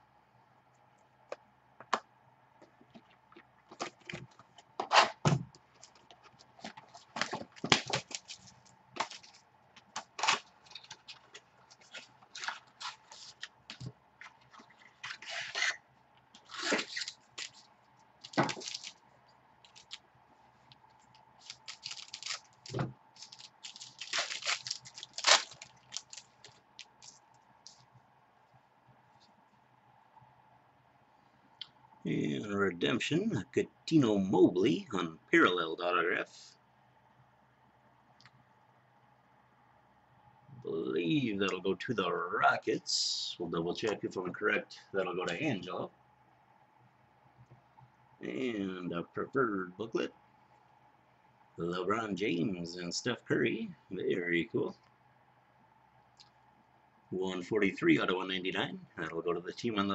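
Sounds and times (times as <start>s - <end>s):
foil wrappers crinkling and tearing: 5.7s - 15.8s, 16.4s - 19.0s, 19.6s - 20.0s, 21.4s - 27.2s
cards being handled: 5.8s - 15.8s, 18.2s - 19.0s, 21.4s - 27.8s.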